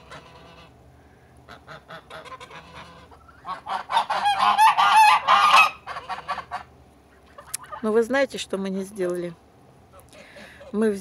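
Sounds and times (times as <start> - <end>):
geese honking: 0.0 - 0.8, 1.4 - 8.0.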